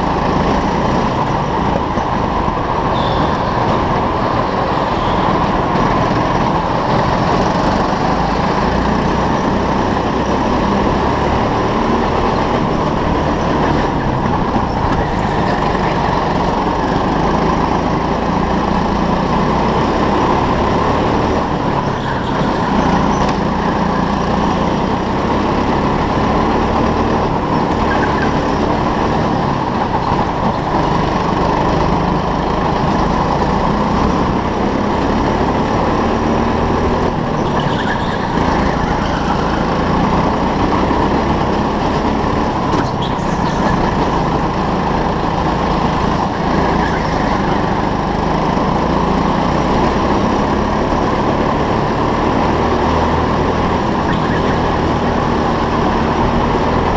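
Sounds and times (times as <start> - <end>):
go-kart motor running: 0.0 - 56.9
tyre and chassis noise: 0.0 - 56.9
faint tyre squeaks: 2.8 - 3.8, 4.7 - 5.6, 21.8 - 24.8, 27.7 - 28.6, 37.2 - 40.1, 42.6 - 44.3, 46.3 - 48.0, 54.0 - 54.7.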